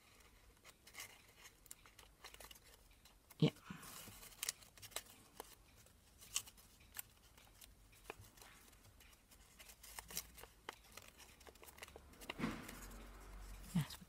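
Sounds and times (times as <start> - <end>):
paper rustling: 3.8 - 13.9.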